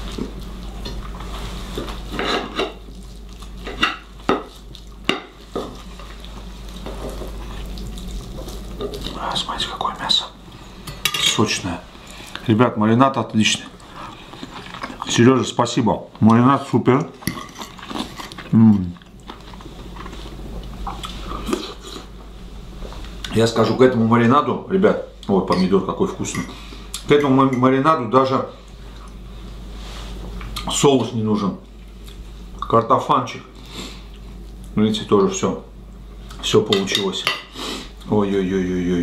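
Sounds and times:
chewing: 5.6 - 9.9, 13.6 - 15.1, 17.3 - 22.2
person murmuring: 18.5 - 19.0
knife and fork clinking on a plate: 25.5 - 26.6.

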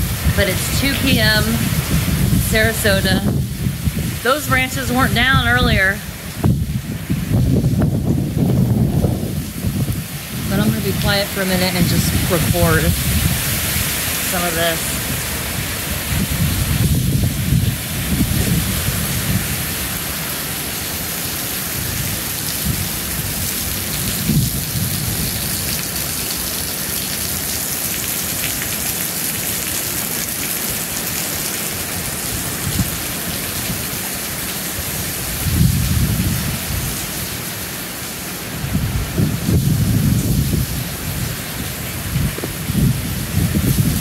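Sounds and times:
wind buffeting microphone: 0.0 - 20.3, 21.8 - 25.8, 35.1 - 37.1, 38.6 - 44.0
heavy rain pouring: 0.0 - 44.0.

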